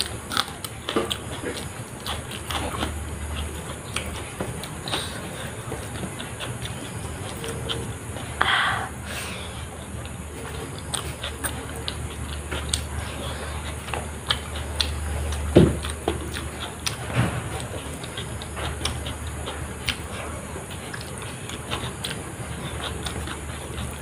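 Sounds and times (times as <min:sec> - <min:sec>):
chewing and mouth clicks: 0:00.0 - 0:24.0
steady low hum: 0:00.0 - 0:24.0
fingers working food on plastic tray: 0:09.6 - 0:24.0.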